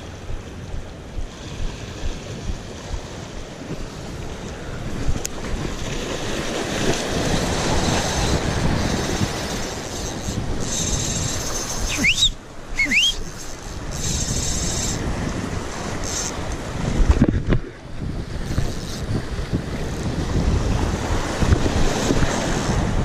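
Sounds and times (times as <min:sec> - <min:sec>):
wind buffeting microphone: 0:00.0 - 0:23.0
rising whistle-like squeals: 0:11.5 - 0:13.5.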